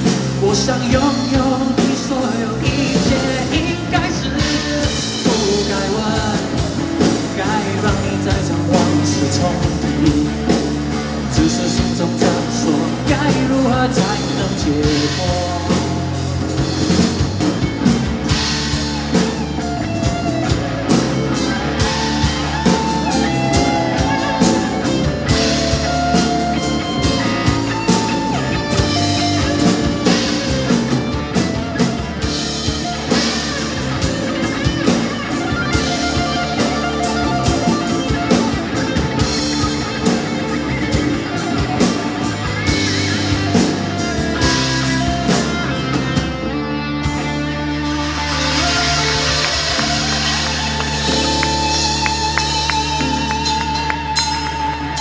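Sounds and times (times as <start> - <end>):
guitar melody: 0.0 - 55.0
live rock band playing: 0.0 - 55.0.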